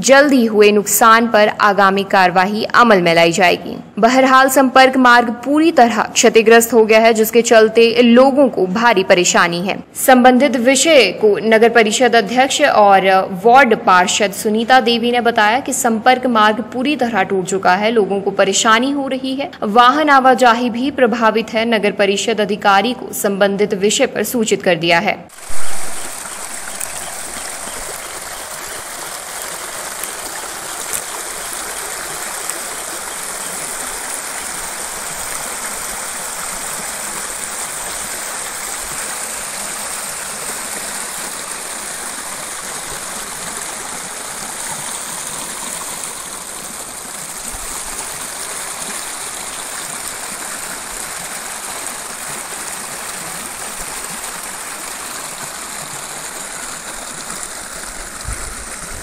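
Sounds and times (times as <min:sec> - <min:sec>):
stream rushing: 0:25.3 - 0:59.0.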